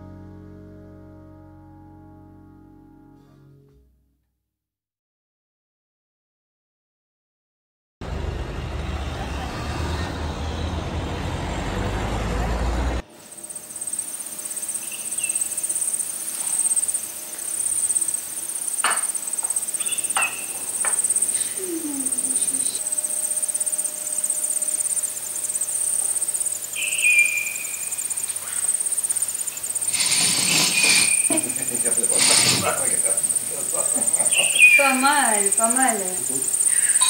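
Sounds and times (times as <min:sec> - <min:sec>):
insects trilling: 0:13.1 - 0:37.0
dishes clinking on table: 0:18.8 - 0:19.2, 0:20.1 - 0:21.0
short bird chirps: 0:25.9 - 0:31.4.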